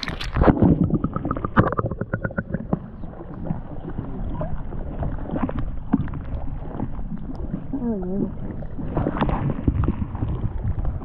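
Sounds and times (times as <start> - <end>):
small underwater clicks: 0.0 - 3.1
muffled underwater bubbling and sloshing: 0.0 - 11.0.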